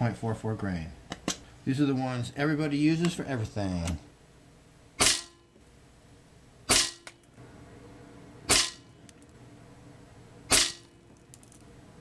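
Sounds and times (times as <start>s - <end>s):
air rifle shots: 5.0s - 5.4s, 6.7s - 7.0s, 8.5s - 8.8s, 10.5s - 10.9s.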